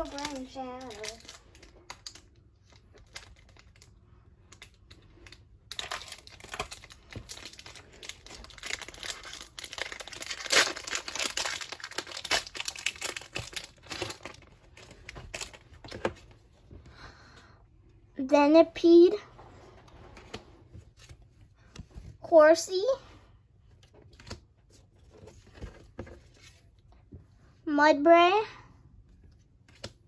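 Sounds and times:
foil wrapper tearing and crinkling: 0:05.7 - 0:15.6.

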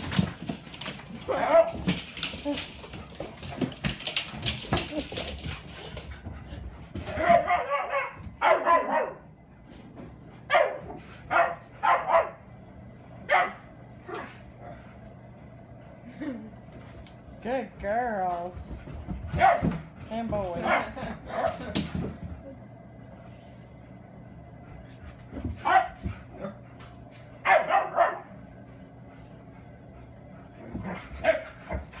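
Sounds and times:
dog barking: 0:07.2 - 0:09.3, 0:10.5 - 0:12.4, 0:13.3 - 0:13.6, 0:19.4 - 0:19.8, 0:25.6 - 0:26.0, 0:27.4 - 0:28.3.

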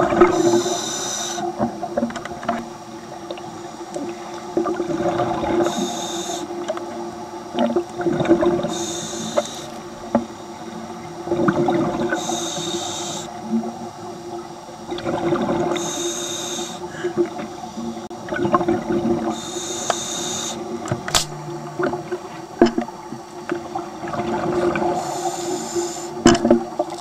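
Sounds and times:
steady low hum: 0:00.0 - 0:26.8
regulator hissing inhale: 0:00.3 - 0:01.6, 0:05.6 - 0:06.6, 0:08.6 - 0:09.8, 0:12.1 - 0:13.4, 0:15.7 - 0:17.9, 0:19.3 - 0:20.8, 0:24.6 - 0:26.2
bubbling of exhaled air: 0:14.9 - 0:27.0.

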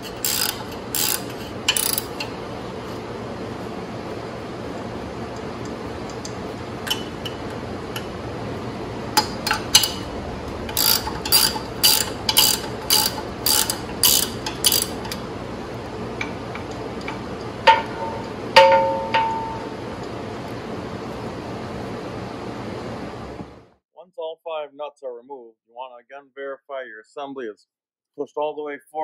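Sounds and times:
ratchet wrench clicking: 0:00.0 - 0:02.4, 0:10.7 - 0:15.2.

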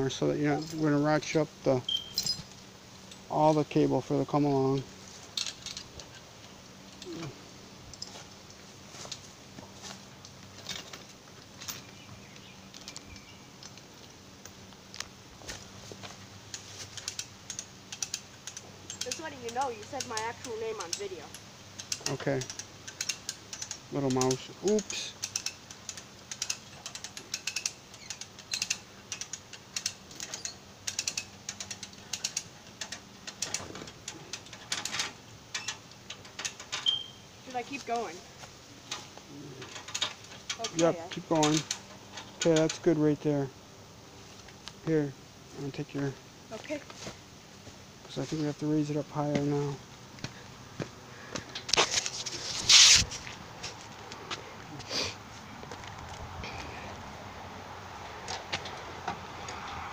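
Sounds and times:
steel chain clicking and rustling: 0:00.3 - 0:03.8, 0:04.4 - 0:15.0, 0:15.6 - 0:43.2
ratchet pawl clicking: 0:16.5 - 0:34.6.

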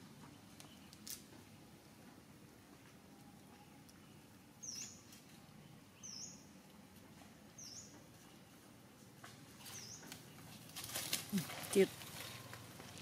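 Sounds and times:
faint outdoor background noise: 0:00.0 - 0:13.0
small bird chirping: 0:03.5 - 0:06.6, 0:07.5 - 0:08.6, 0:09.6 - 0:10.6.

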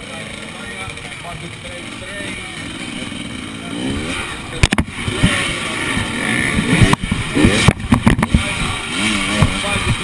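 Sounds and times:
motorcycle engine revving: 0:00.0 - 0:10.0
sharp knocks: 0:04.6 - 0:05.4.

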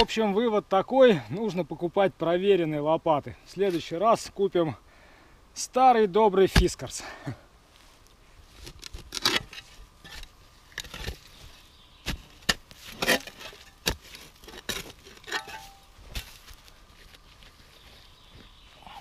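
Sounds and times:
spade chopping into soil and roots: 0:12.0 - 0:16.6.

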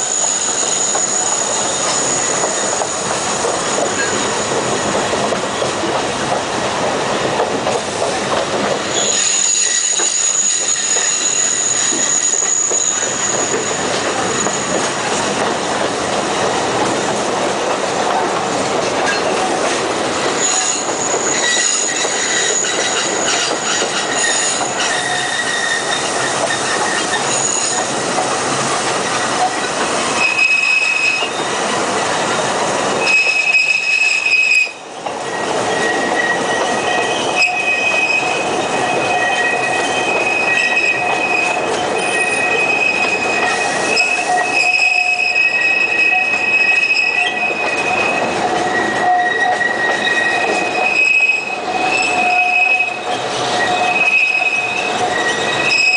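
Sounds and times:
train wheels squealing: 0:00.0 - 0:05.0, 0:08.8 - 0:14.9, 0:20.4 - 0:28.2, 0:29.4 - 0:31.7, 0:33.0 - 0:55.9
train running gear rumble: 0:00.0 - 0:55.9.

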